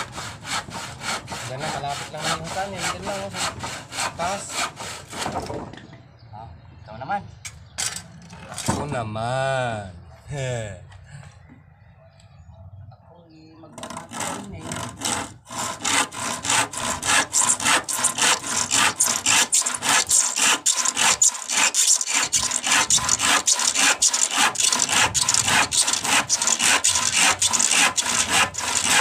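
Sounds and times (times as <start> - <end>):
handsaw cutting wood: 0.0 - 5.6, 13.8 - 29.0.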